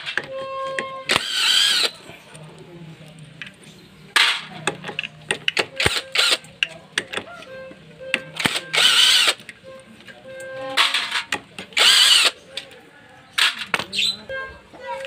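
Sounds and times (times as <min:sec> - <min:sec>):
impact driver running: 0:01.1 - 0:02.0, 0:11.8 - 0:12.3.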